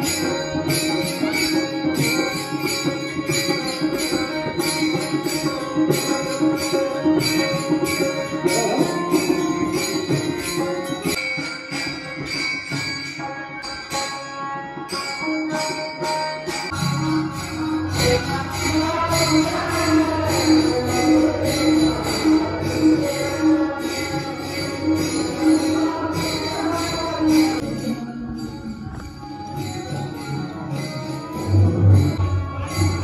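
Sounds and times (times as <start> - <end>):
hand cymbals clashing: 0.0 - 33.0
group singing devotional song: 17.9 - 24.8.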